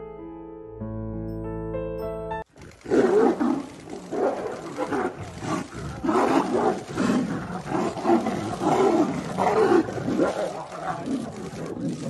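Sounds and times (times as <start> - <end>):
tigers roaring: 2.6 - 12.0.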